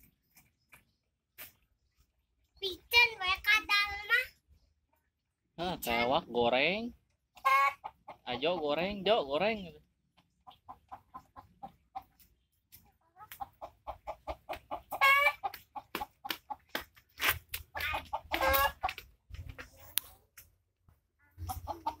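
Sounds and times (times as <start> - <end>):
chickens clucking: 5.8 - 20.5, 21.2 - 22.0.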